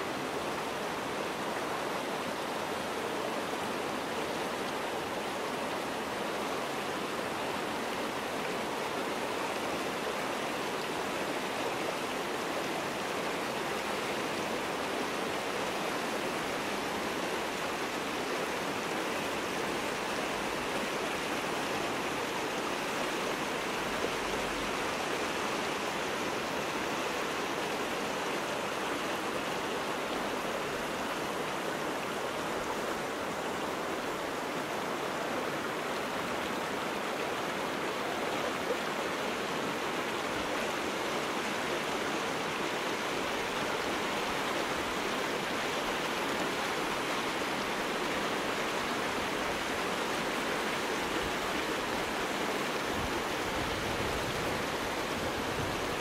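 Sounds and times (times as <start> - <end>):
water rushing over boulders: 0.0 - 56.0.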